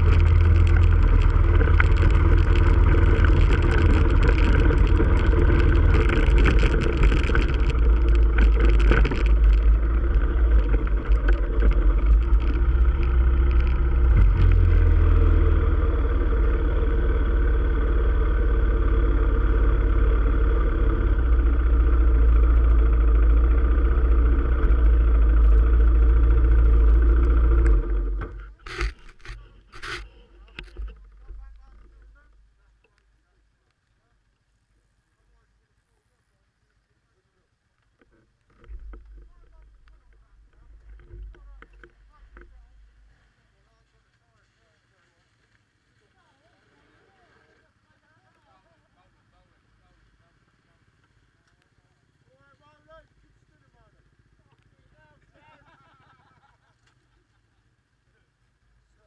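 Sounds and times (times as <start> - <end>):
quad bike engine running: 0.0 - 33.4, 45.4 - 59.0.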